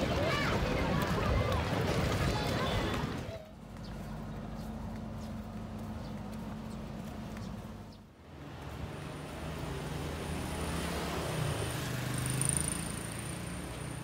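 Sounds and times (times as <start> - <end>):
vehicle engine passing by: 8.3 - 14.0.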